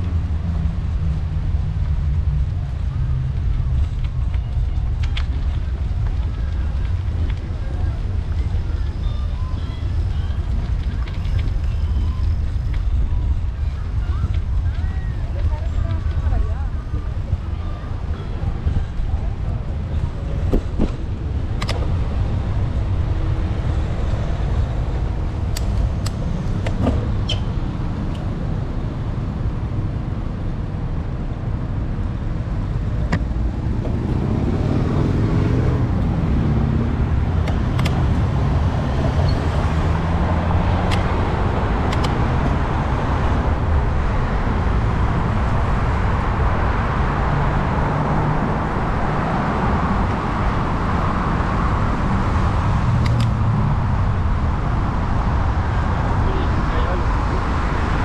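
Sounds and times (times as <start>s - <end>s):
passing traffic: 0.0s - 58.0s
wind and tyre rumble: 0.0s - 58.0s
bicycle clicks and rattles: 3.3s - 7.5s, 10.2s - 13.2s.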